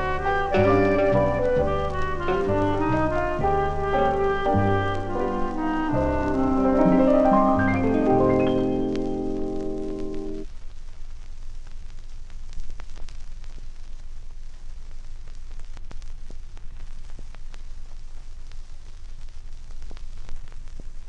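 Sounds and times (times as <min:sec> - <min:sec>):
low rumble and hiss: 0:00.0 - 0:21.0
record crackles and pops: 0:00.0 - 0:21.0
vinyl record surface noise: 0:00.0 - 0:21.0.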